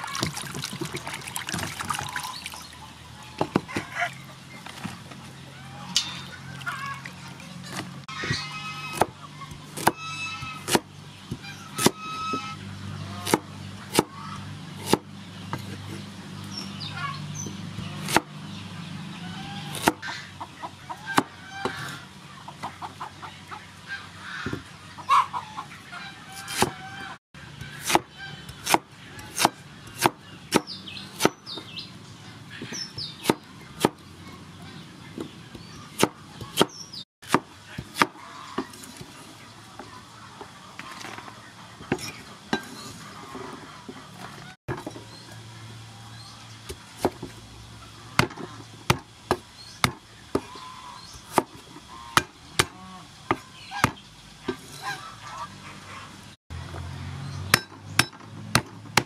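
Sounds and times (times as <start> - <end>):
chickens clucking: 0.0 - 15.0, 18.8 - 37.0, 37.7 - 44.6, 49.9 - 56.2
cleaver chopping on wooden board: 8.2 - 12.0, 13.2 - 14.1, 14.8 - 15.8, 19.7 - 20.0, 27.6 - 31.6, 32.6 - 34.0, 35.2 - 38.2, 48.2 - 50.5, 57.5 - 59.0.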